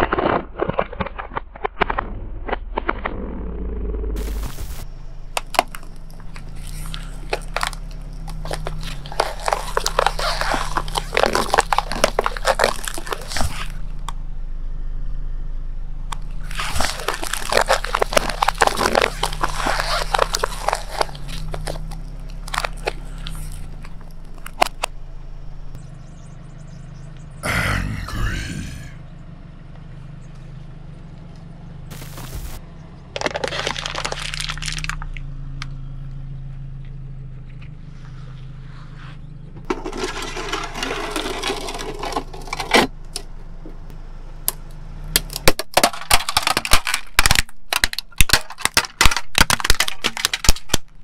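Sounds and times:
objects crunching under car tyre: 0.0 - 3.6, 4.2 - 14.4, 15.9 - 25.8, 31.9 - 35.8, 38.8 - 51.0
car engine humming: 2.8 - 48.1.

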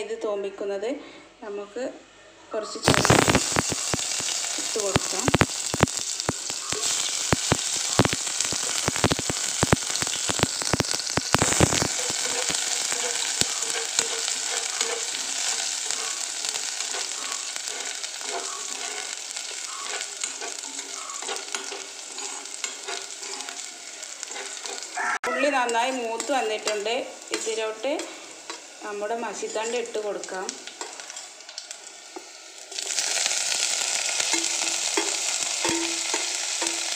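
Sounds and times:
shallots sizzling in oil: 2.8 - 36.9
spatula stirring in pan: 3.5 - 30.0, 34.2 - 36.9.

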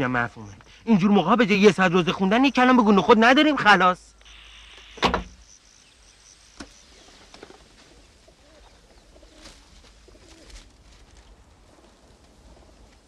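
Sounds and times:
faint bird calls: 4.2 - 10.6.

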